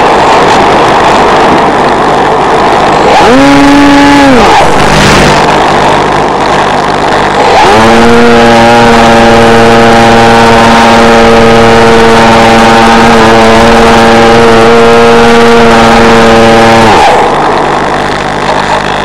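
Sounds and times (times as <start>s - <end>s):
electric motor whine: 0.0s - 19.0s
rush of air: 4.3s - 7.5s.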